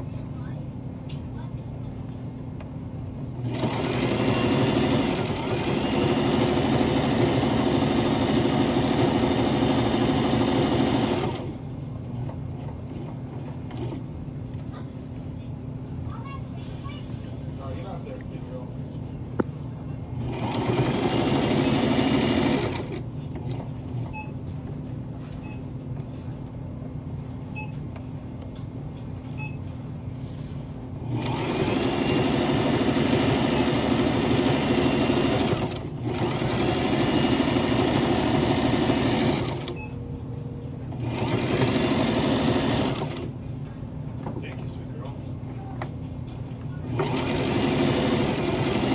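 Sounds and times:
sewing machine stitching: 3.3s - 11.6s, 13.0s - 14.0s, 20.2s - 23.7s, 31.0s - 39.9s, 40.9s - 43.4s, 46.9s - 48.9s.

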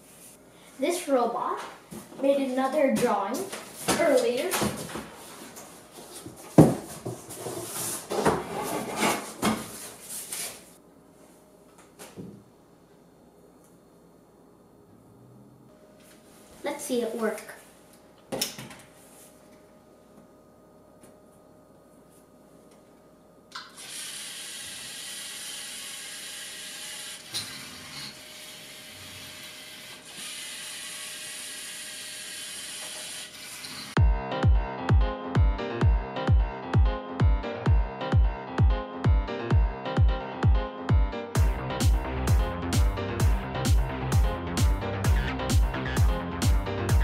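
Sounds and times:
poster board knocking and scraping: 6.5s - 9.9s
robot motors whirring: 23.8s - 33.9s.

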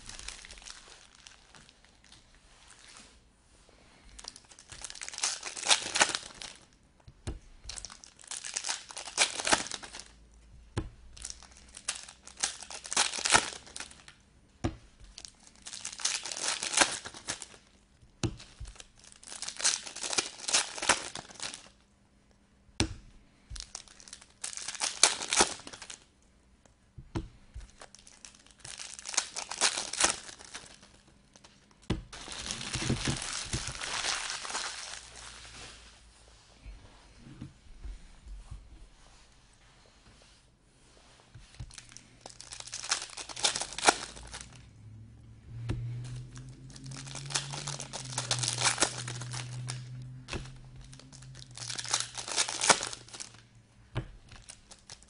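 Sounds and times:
foil packs tearing and crinkling: 0.0s - 1.9s, 4.2s - 6.7s, 7.6s - 10.2s, 11.2s - 14.1s, 15.1s - 17.6s, 18.4s - 21.7s, 23.5s - 26.0s, 27.7s - 31.4s, 32.1s - 35.4s, 41.7s - 44.6s, 46.2s - 53.4s, 54.3s - 55.0s.

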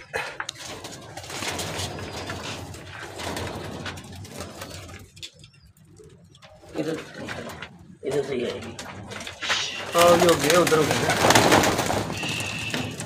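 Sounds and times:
pigeons cooing: 9.4s - 13.0s.

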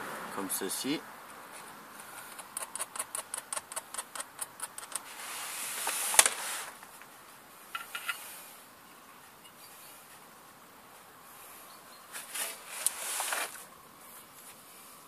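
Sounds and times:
hiss: 5.1s - 6.8s.

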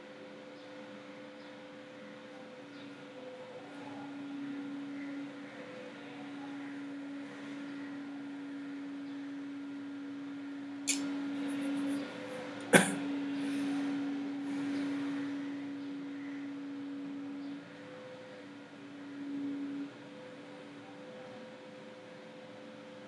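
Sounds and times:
low electrical hum with hiss: 0.0s - 23.0s
sharp loud click: 10.9s - 11.1s.

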